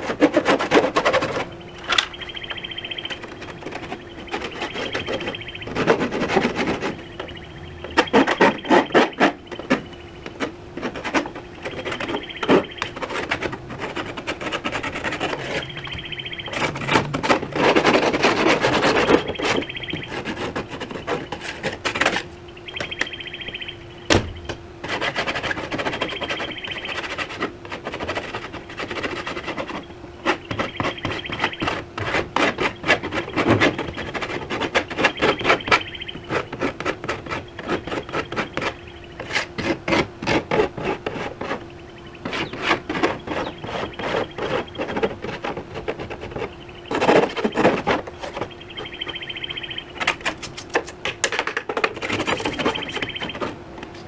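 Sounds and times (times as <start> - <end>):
sanding metal panel: 0.0 - 1.6, 2.9 - 22.3, 24.8 - 51.0, 51.7 - 53.6.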